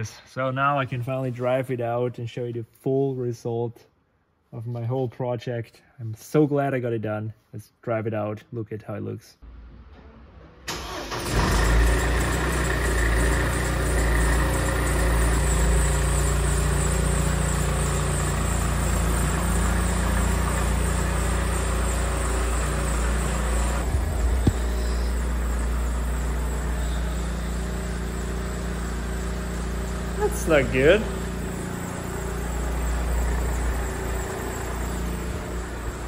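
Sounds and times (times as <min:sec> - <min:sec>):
car engine running: 0:11.1 - 0:36.0.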